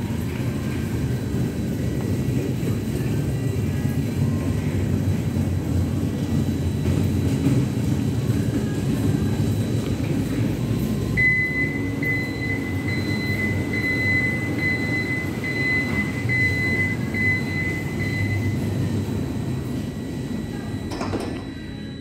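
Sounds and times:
elevator door drive rumble: 0.0s - 22.0s
high warning beep: 10.7s - 22.0s.

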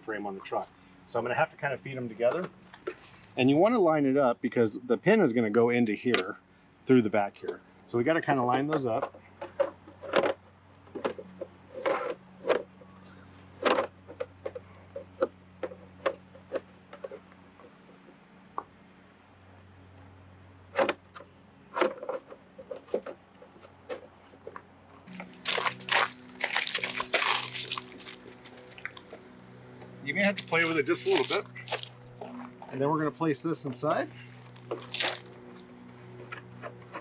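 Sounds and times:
plastic shell scraping and rubbing: 8.8s - 12.7s, 13.6s - 17.8s, 20.7s - 29.2s, 34.2s - 37.0s.

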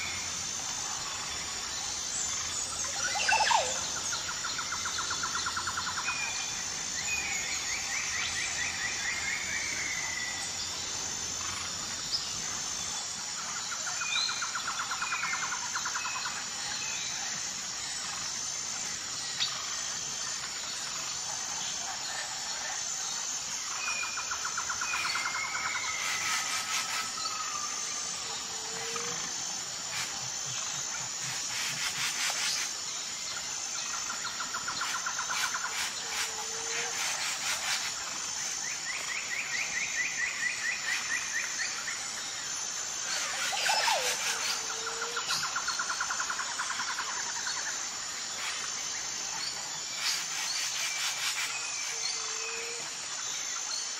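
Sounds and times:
birds trilling and whistling: 0.0s - 10.6s, 43.0s - 47.6s
high-pitched insect chorus: 0.0s - 53.9s.

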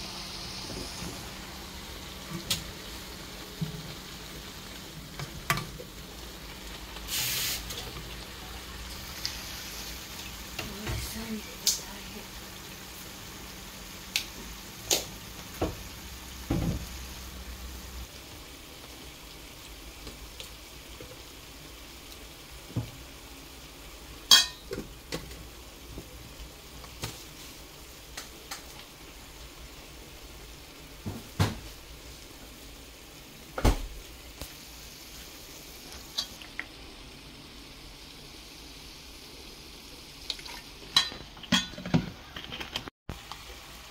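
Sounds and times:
peppers sizzling in pan: 0.0s - 43.9s
spoon clinking on metal bowl: 24.3s - 24.6s.

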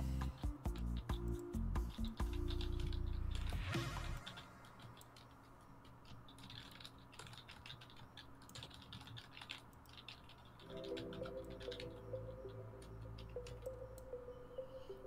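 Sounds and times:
background music: 0.0s - 4.7s, 10.6s - 15.0s
computer keyboard and mouse clicking: 0.4s - 14.2s.

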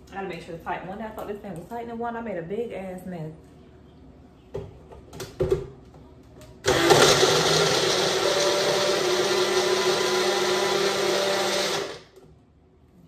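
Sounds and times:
blender motor running: 6.6s - 12.1s.

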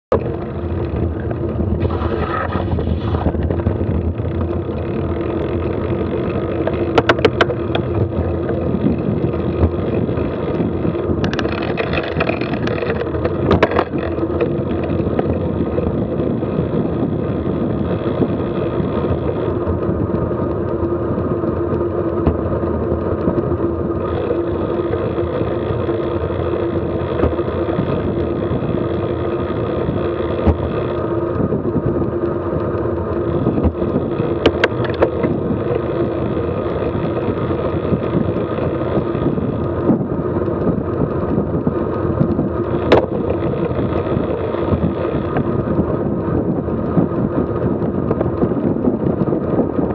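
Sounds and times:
road rumble: 0.1s - 49.9s
wind rush: 0.1s - 49.9s.

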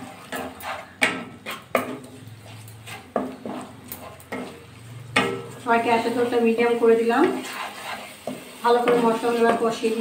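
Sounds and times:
spatula scraping a pan: 0.0s - 10.0s
spatula knocking against pan: 0.4s - 2.1s.

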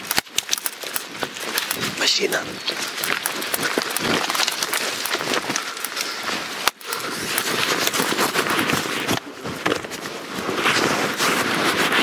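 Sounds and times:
sharp twig crack: 0.0s - 2.0s
twigs and brush crackling: 0.0s - 12.0s.

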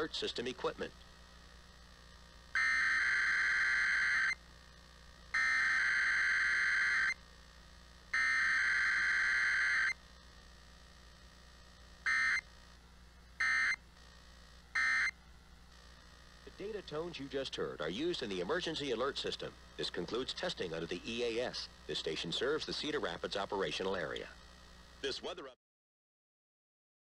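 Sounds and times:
buzzing data tone bursts: 2.5s - 4.4s, 5.3s - 7.2s, 8.1s - 10.0s, 12.0s - 12.4s, 13.4s - 13.8s.

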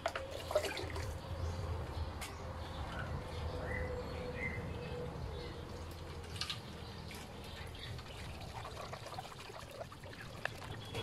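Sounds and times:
water pouring into radiator: 0.2s - 1.1s, 7.7s - 11.0s.

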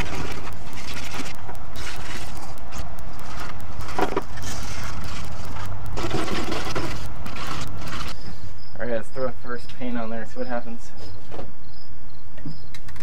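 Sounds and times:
wire brush scraping sheet metal: 0.0s - 8.2s.

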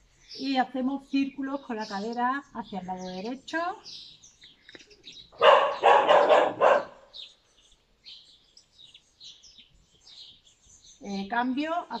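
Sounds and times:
dog barking: 5.4s - 7.1s.

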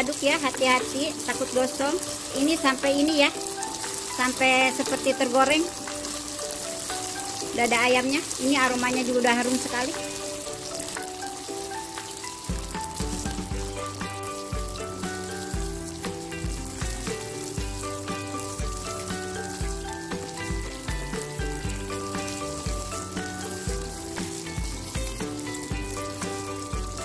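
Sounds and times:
background music with steady beat: 0.0s - 27.0s
chicken sizzling in a wok: 0.0s - 27.0s.

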